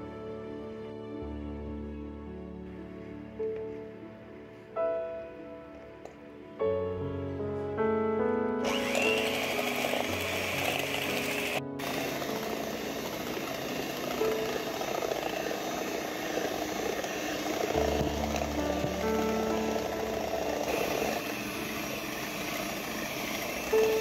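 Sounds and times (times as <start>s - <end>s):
soft background music: 0.0s - 24.0s
electric hand mixer whirring: 8.6s - 24.0s.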